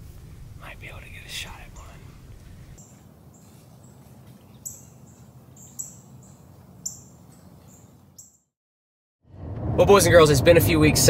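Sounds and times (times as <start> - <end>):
steady low rumble: 0.0 - 3.3, 9.3 - 11.0
high bird chirps: 1.5 - 2.0, 2.8 - 8.5.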